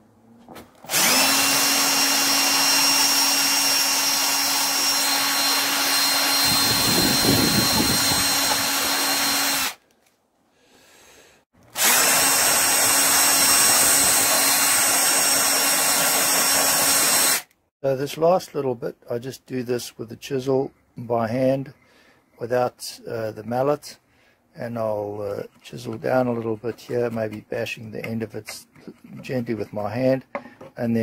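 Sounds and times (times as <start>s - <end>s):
electric drill sanding wood: 0.9s - 9.8s, 11.8s - 17.5s.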